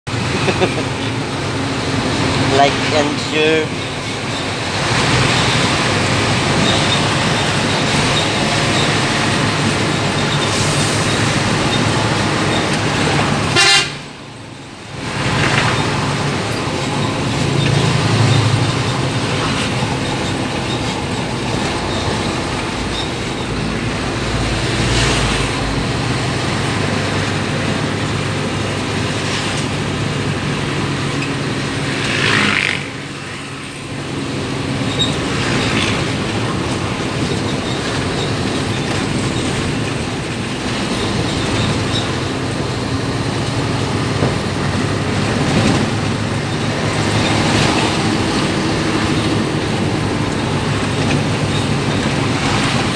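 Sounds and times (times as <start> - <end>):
bus engine running: 0.0 - 52.9
road and tyre noise: 0.0 - 52.9
horn toot: 13.5 - 14.1.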